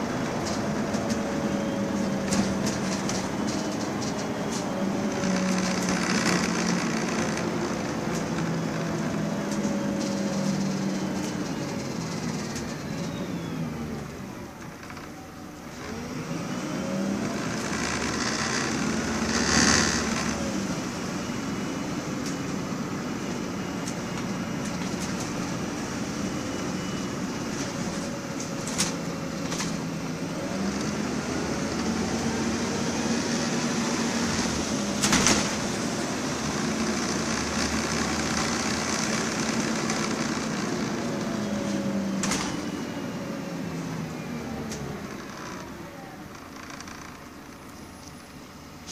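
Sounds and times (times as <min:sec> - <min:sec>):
bus body rattling and knocking: 0:00.0 - 0:13.2, 0:17.2 - 0:32.9, 0:33.5 - 0:41.4, 0:42.2 - 0:42.8
bus diesel engine running: 0:00.0 - 0:48.9.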